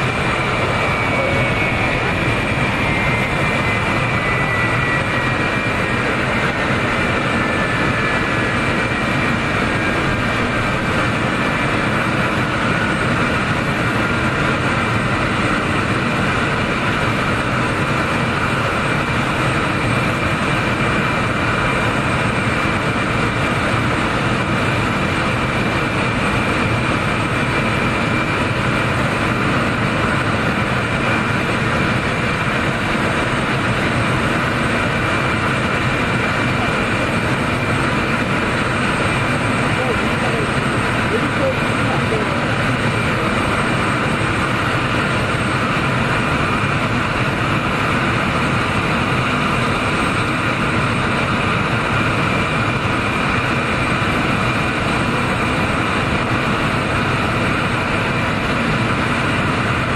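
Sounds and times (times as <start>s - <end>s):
jet engines idling: 0.0s - 59.9s.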